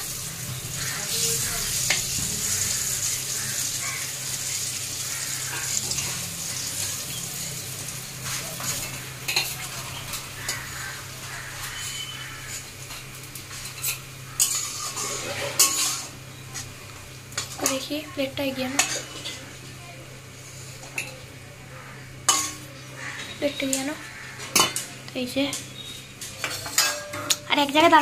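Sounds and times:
oil sizzling in a wok: 0.0s - 28.0s
metal spatula scraping a pan: 8.2s - 12.7s, 13.6s - 16.2s, 26.4s - 27.3s.

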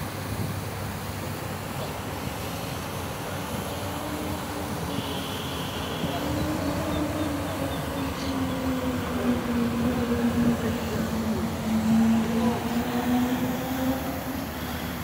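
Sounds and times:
small steam engine humming: 0.0s - 15.0s
steam hiss: 10.4s - 15.0s.

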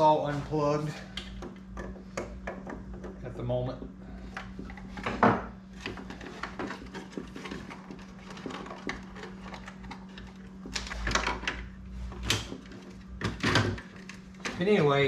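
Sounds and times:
plastic parts rattling: 5.8s - 11.6s.

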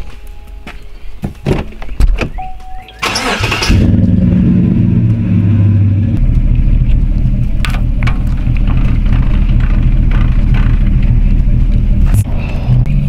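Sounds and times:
engine starter cranking: 3.0s - 4.3s
engine idling: 3.0s - 12.2s.

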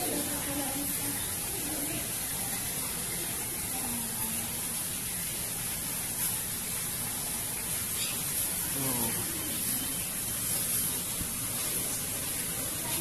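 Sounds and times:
steady background hiss: 0.0s - 13.0s
faint voice: 8.8s - 9.5s.

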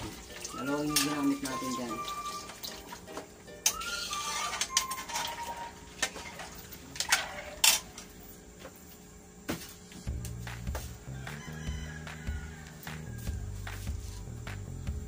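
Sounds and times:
metal ladle scraping a wok: 3.7s - 6.4s.

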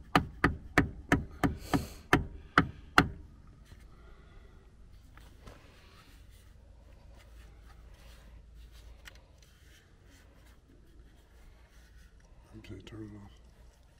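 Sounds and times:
plastic part clicking and rubbing: 7.2s - 12.3s.

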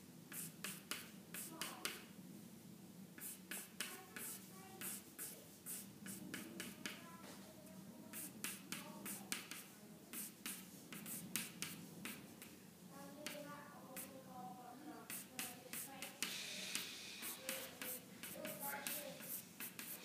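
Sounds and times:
pencil scratching on board: 0.3s - 2.0s, 3.2s - 7.0s, 8.1s - 12.5s, 15.0s - 20.0s.

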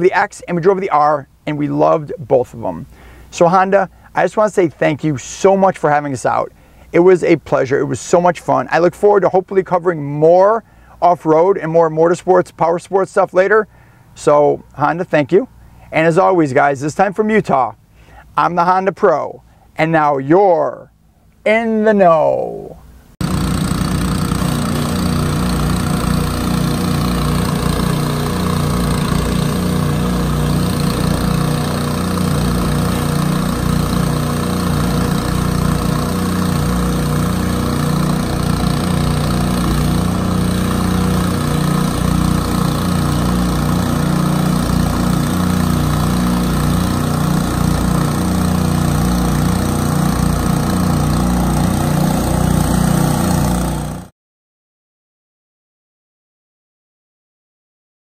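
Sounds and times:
pressure washer engine running: 23.2s - 54.1s
pressure washer spraying: 23.2s - 54.1s.

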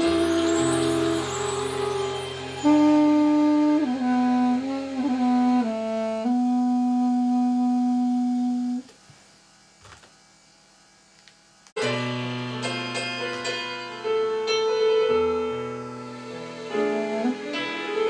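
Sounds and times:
duduk playing slow melody: 0.0s - 8.8s.

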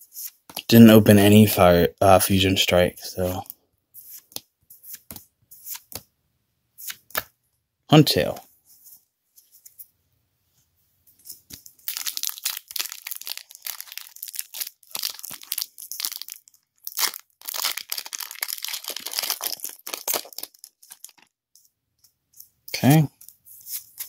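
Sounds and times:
foil wrapper crinkling and tearing: 11.8s - 21.3s.

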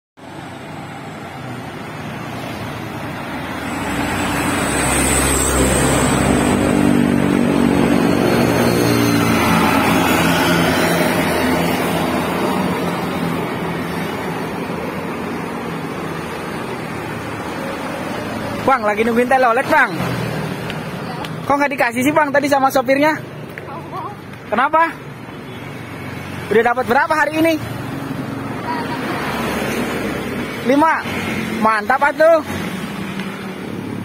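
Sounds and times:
coach bus driving past: 0.2s - 21.5s
road traffic: 0.2s - 34.0s.

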